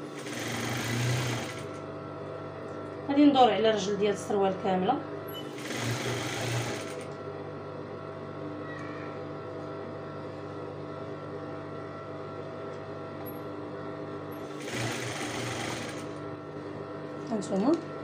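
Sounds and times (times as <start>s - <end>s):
sewing machine stitching: 0.0s - 1.7s, 5.4s - 7.1s, 14.5s - 16.1s.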